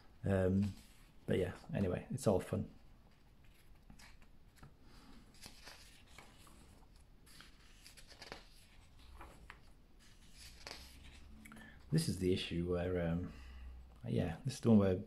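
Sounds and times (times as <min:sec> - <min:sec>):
book pages turning: 0:03.1 - 0:11.5.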